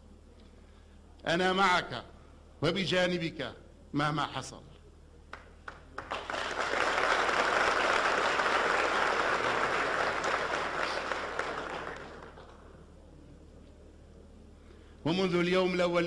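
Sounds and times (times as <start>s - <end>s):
crowd applauding: 5.3s - 12.8s.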